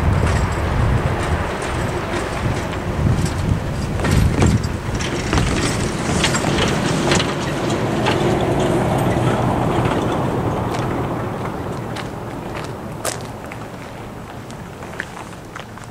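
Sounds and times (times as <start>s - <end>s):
pickup truck passing: 0.0s - 15.9s
tyres knocking over rails: 0.1s - 11.2s.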